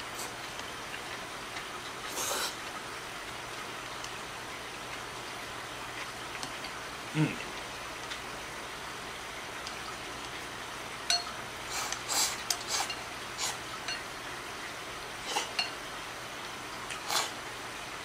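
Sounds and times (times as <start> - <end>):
noodle slurp: 2.0 - 2.6, 11.7 - 13.6, 15.2 - 15.6, 16.9 - 17.4
chopsticks tapping ceramic bowl: 11.1 - 11.4.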